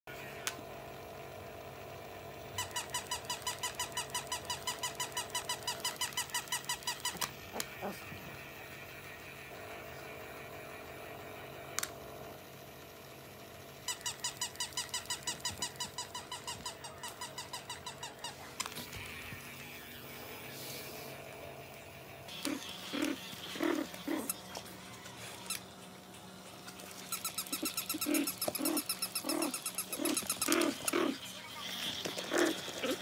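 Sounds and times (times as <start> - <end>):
toy dog squeaky electronic yips: 2.6 - 7.3, 13.9 - 18.4, 25.3 - 25.6, 26.8 - 33.0.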